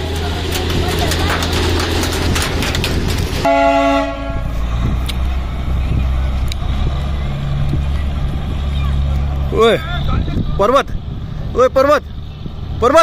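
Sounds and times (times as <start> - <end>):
rushing noise with clicks: 0.0 - 3.5
low engine hum: 0.0 - 13.0
train horn blast: 3.4 - 4.5.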